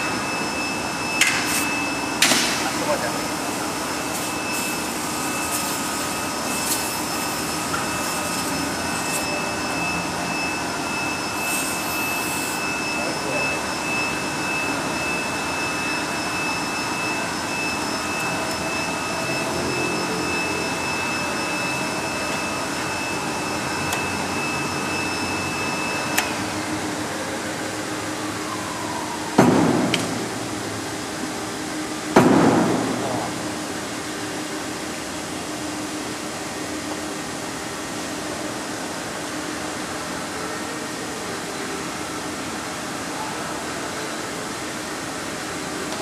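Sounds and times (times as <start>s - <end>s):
high machine whine: 0.0s - 46.0s
paper cutter motor hum: 3.4s - 12.8s.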